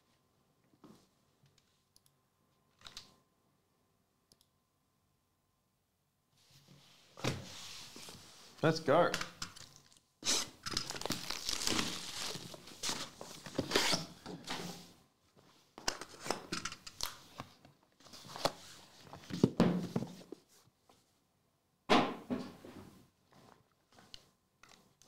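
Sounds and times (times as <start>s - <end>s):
plastic wrap crinkling: 9.6s - 13.5s.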